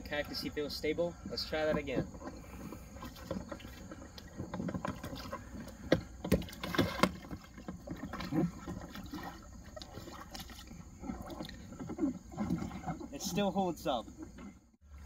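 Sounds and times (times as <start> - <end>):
water sloshing against kayak hull: 0.0 - 15.0
feet knocking on plastic hull: 1.2 - 11.8.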